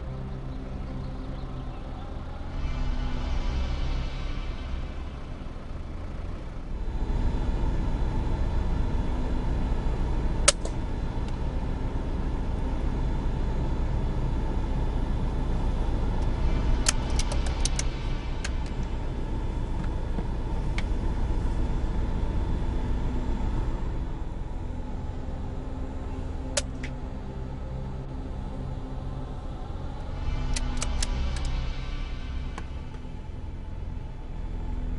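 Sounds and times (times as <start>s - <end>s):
vehicle engine idling: 0.0s - 34.9s
clicks: 16.8s - 18.9s, 30.5s - 31.6s.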